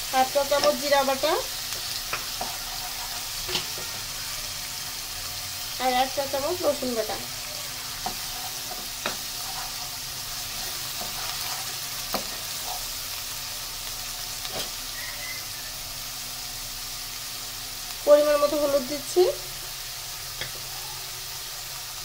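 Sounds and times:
food sizzling in hot oil: 0.0s - 22.0s
wooden spatula stirring: 1.8s - 4.0s, 7.6s - 13.0s.

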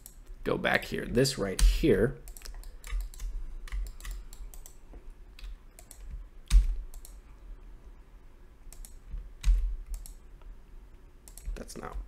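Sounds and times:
computer keyboard keystrokes: 1.5s - 4.8s, 5.4s - 7.2s, 8.7s - 10.2s.

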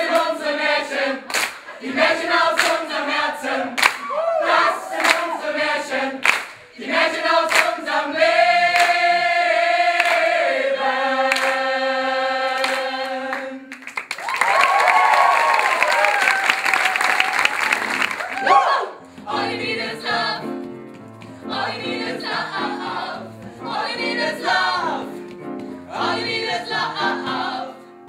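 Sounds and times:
group singing: 0.0s - 13.8s, 18.5s - 20.6s, 21.4s - 25.2s, 25.8s - 27.9s.

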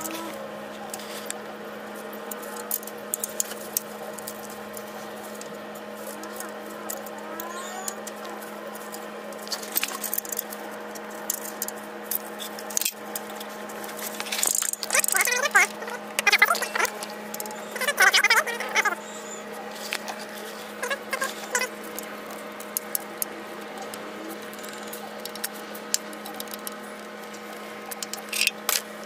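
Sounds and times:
steady hum: 0.0s - 29.0s.

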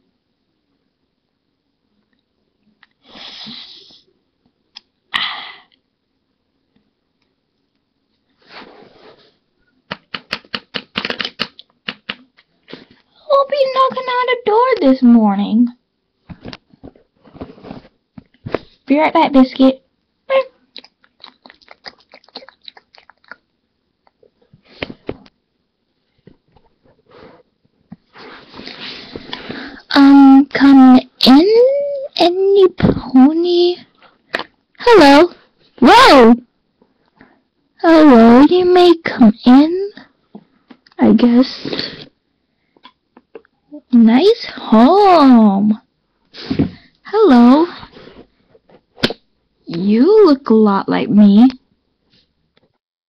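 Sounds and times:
plastic toys clicking: 9.9s - 12.4s.

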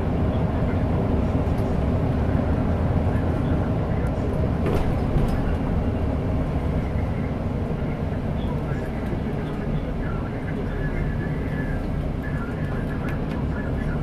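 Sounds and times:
bus engine and road rumble: 0.0s - 14.0s.

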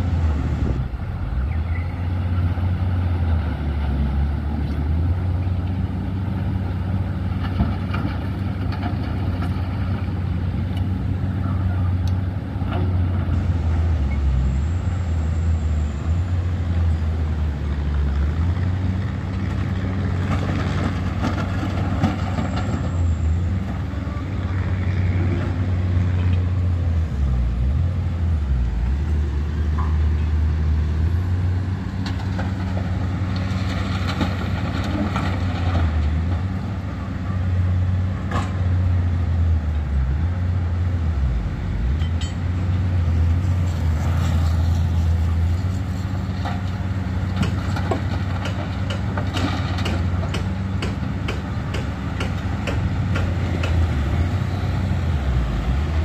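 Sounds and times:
excavator diesel engine under load: 0.0s - 56.0s
sharp knocks and clicks: 47.4s - 53.8s.

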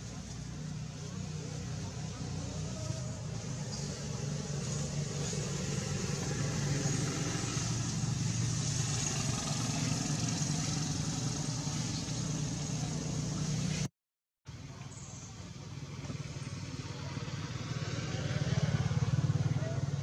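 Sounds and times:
engine humming: 0.0s - 13.9s.

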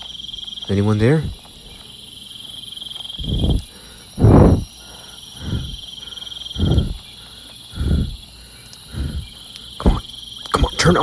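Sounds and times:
crickets chirping: 0.0s - 11.0s
dull low thuds: 1.2s - 1.9s, 3.1s - 4.8s, 5.4s - 5.9s, 6.6s - 7.1s, 8.9s - 10.1s.

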